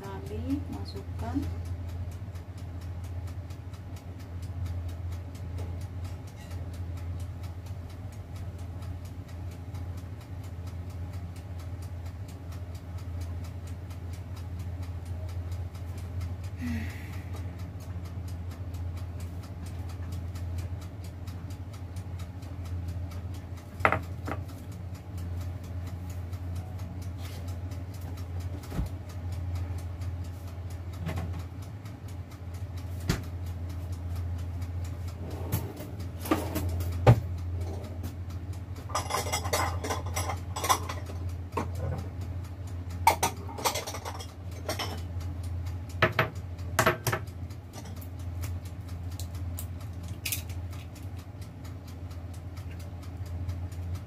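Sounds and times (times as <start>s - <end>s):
dishes and utensils clattering: 38.9s - 41.1s, 43.1s - 45.0s.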